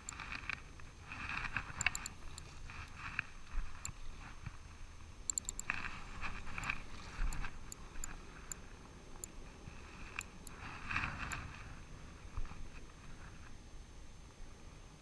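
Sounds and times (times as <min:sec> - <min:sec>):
reel clicks and scrapes: 0:00.0 - 0:04.3, 0:05.3 - 0:08.2.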